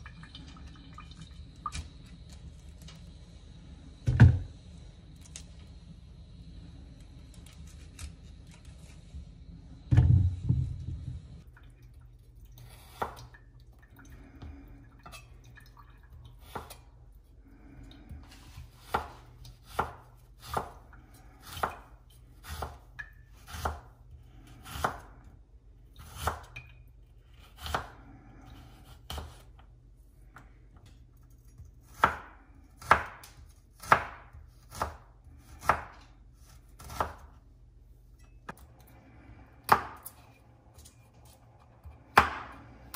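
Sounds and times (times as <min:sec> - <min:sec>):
heavy thump: 0:09.9 - 0:11.2.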